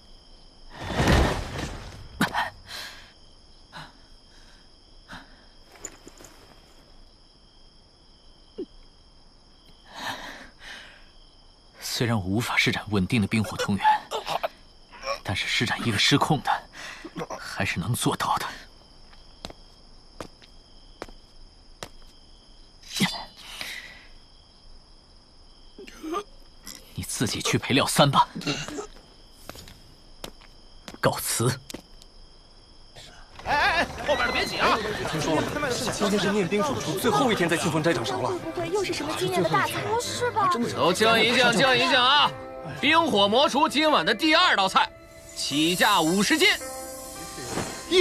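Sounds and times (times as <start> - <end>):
crickets chirring: 0.0 - 48.0
body thudding onto cobblestones: 0.8 - 2.6, 19.3 - 22.2.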